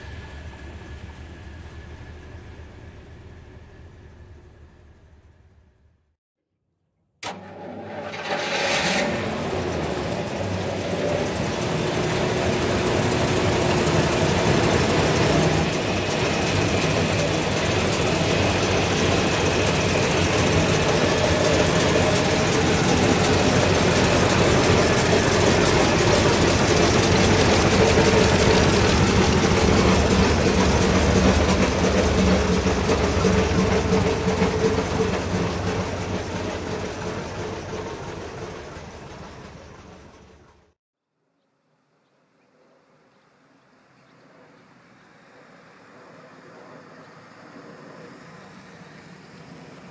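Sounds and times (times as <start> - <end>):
engine starting and idling: 7.2 - 40.8.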